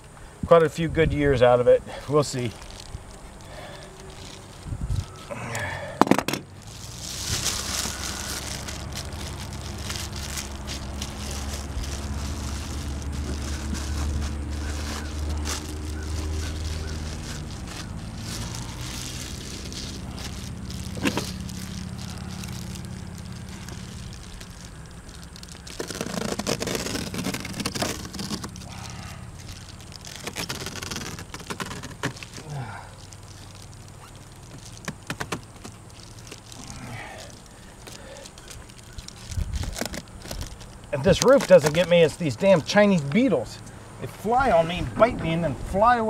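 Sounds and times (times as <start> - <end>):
foil insulation crinkling: 1.4 - 43.3
low engine hum: 1.9 - 46.0.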